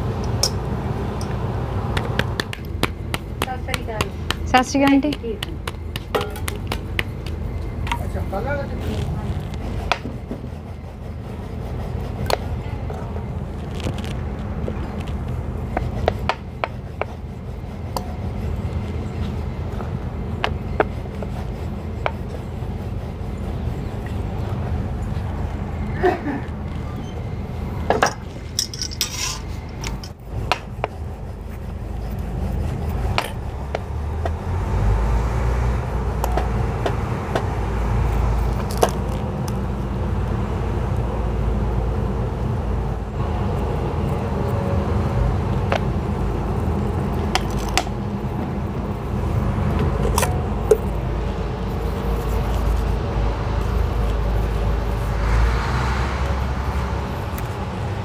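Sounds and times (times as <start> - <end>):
steady low hum: 0.0 - 58.0
steel utensils clinking and scraping: 28.0 - 30.2.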